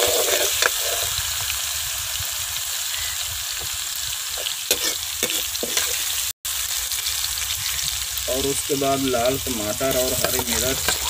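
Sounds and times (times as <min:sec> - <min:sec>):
metal spoon scraping pan: 0:00.0 - 0:01.2, 0:04.4 - 0:06.0, 0:09.8 - 0:11.0
onions sizzling in pan: 0:00.0 - 0:11.0.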